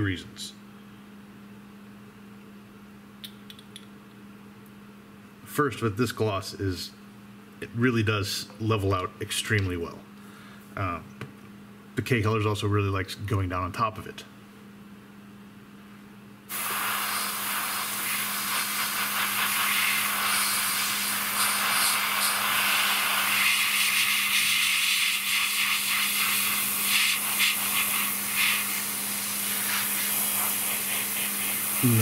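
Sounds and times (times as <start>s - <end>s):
airbrush spraying hiss: 16.5s - 32.0s.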